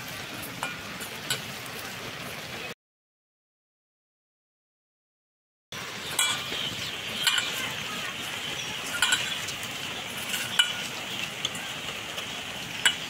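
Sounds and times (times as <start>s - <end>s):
light clinks on metal bowl: 6.1s - 6.5s, 7.2s - 7.6s, 8.9s - 9.4s, 10.3s - 10.9s.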